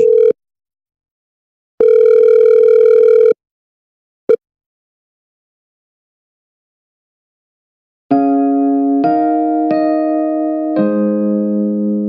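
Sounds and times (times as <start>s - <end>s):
telephone ringing tone: 0.0s - 0.4s, 1.8s - 3.4s.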